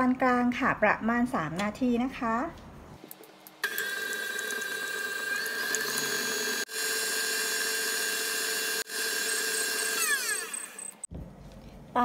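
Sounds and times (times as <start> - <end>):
stand mixer motor whining: 3.6 - 11.1.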